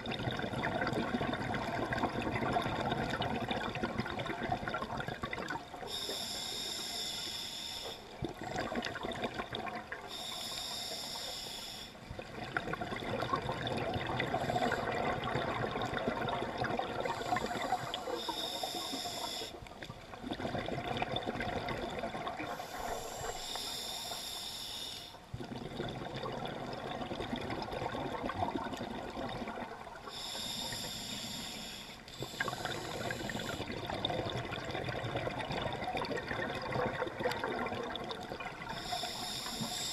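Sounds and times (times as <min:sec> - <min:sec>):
gurgle of exhaled bubbles: 0:00.0 - 0:05.9, 0:08.1 - 0:10.1, 0:12.1 - 0:23.5, 0:25.3 - 0:30.2, 0:32.2 - 0:39.8
hissing inhales through regulator: 0:05.8 - 0:08.2, 0:10.0 - 0:12.1, 0:14.2 - 0:15.3, 0:17.0 - 0:19.7, 0:22.4 - 0:25.3, 0:30.0 - 0:33.9, 0:38.6 - 0:39.9.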